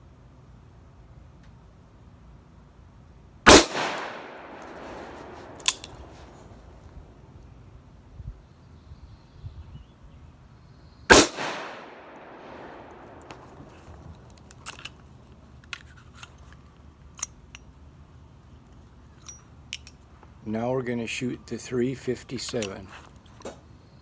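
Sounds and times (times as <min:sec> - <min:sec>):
revolver gunshot: 0:03.5 - 0:06.4, 0:11.1 - 0:13.6
metallic clicks of revolver cylinder: 0:05.5 - 0:06.1, 0:15.6 - 0:17.8, 0:18.7 - 0:20.0, 0:22.3 - 0:22.8.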